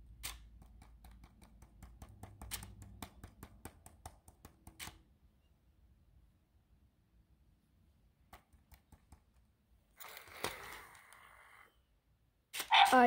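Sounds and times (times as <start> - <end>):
fingertips tapping hard plastic: 0.1 - 5.0, 8.2 - 9.5.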